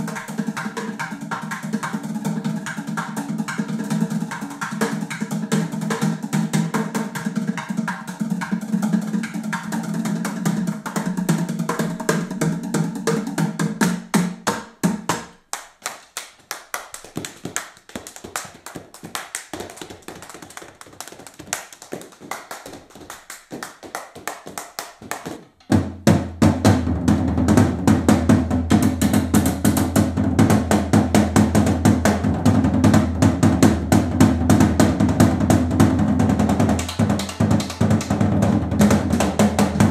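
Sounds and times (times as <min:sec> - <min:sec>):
drums played with sticks: 0:00.0 - 0:15.5, 0:17.0 - 0:39.9.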